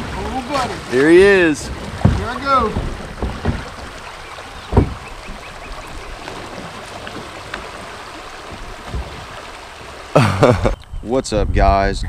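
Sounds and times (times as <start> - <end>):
dull thumps: 0.0 - 9.5
river water rippling over gravel: 0.0 - 10.7.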